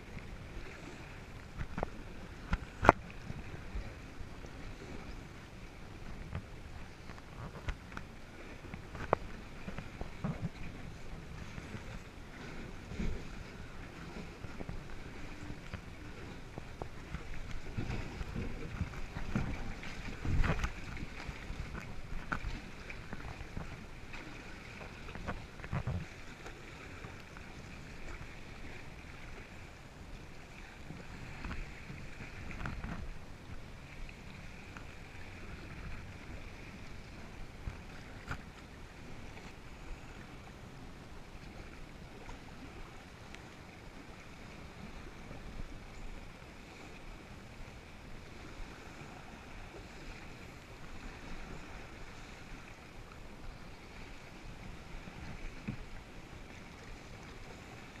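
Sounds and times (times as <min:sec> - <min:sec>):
wind on microphone: 0:00.0 - 0:43.0
paddle dipping in water: 0:00.0 - 0:58.0
water lapping against hull: 0:00.0 - 0:58.0.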